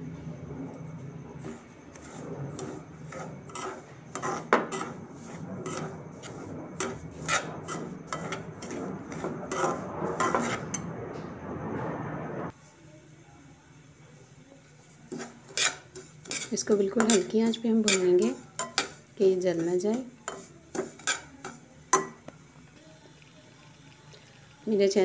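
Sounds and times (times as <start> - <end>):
metal spatula scraping a pan: 1.3 - 10.9, 14.8 - 22.2.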